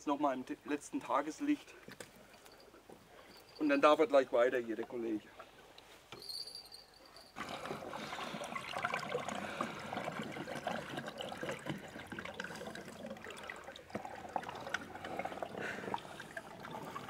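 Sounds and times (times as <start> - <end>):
water splashing and trickling: 7.2 - 17.0.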